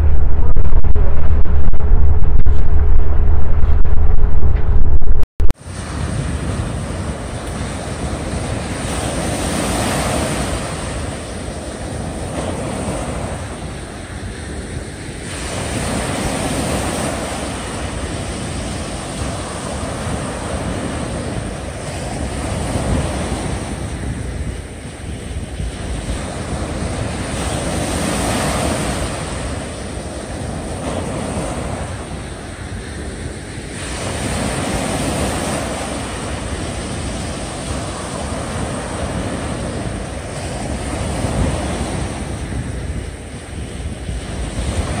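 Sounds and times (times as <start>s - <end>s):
wind rumbling on microphone: 0.0s - 45.0s
small waves breaking on sand: 5.6s - 45.0s.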